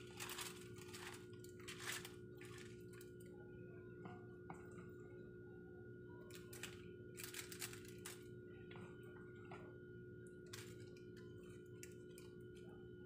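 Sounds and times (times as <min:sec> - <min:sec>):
foil crinkling: 0:00.0 - 0:03.1, 0:06.3 - 0:08.3
steady low hum: 0:00.0 - 0:13.0.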